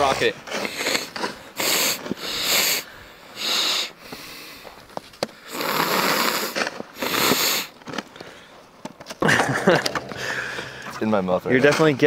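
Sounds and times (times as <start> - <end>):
person sniffing: 0.6 - 4.7, 5.4 - 7.7
person breathing: 0.6 - 5.8, 10.0 - 11.0.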